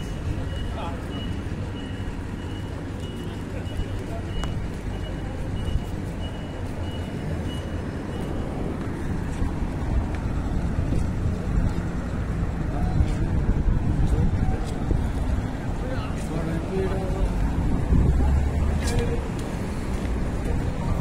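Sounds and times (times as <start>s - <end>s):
vehicle engines rumbling: 0.0s - 21.0s
high electronic beep: 0.3s - 8.7s.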